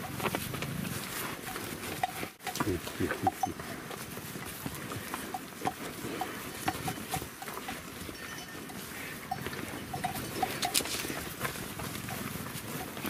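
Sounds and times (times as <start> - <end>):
small ticks and crackles: 0.0 - 2.8, 3.4 - 13.0
cattle tearing and chewing grass: 0.0 - 13.0.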